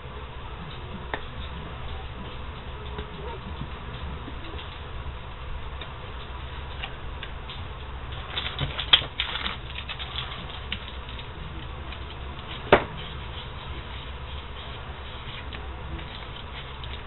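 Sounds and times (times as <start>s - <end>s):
low steady hum: 0.0s - 17.0s
tape peeling and crumpling: 6.6s - 17.0s.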